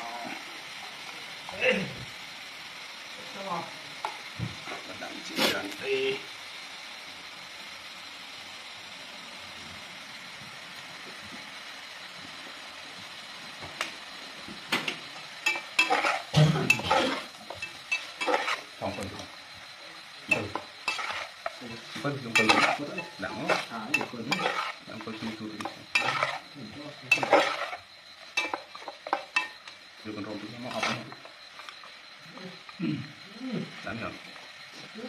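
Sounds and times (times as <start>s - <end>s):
steady sizzle: 0.0s - 35.0s
metal ladle scraping pot: 15.5s - 18.7s, 20.3s - 21.6s, 22.3s - 26.5s, 27.1s - 27.8s.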